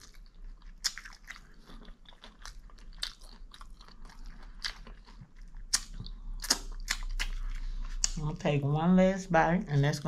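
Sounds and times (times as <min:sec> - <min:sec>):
person chewing food: 0:00.0 - 0:08.3.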